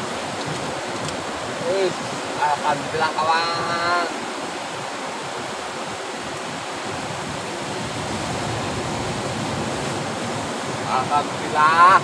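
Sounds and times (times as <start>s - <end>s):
sea surf breaking over rocks: 0.0s - 12.0s.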